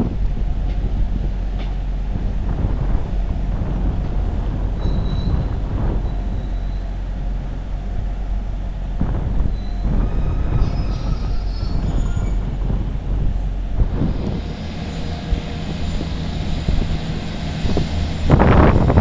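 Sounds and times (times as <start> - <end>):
diesel train engine rumble: 0.0 - 19.0
diesel train pulling away: 0.0 - 19.0
wheel squeal: 4.8 - 7.0, 9.5 - 12.5.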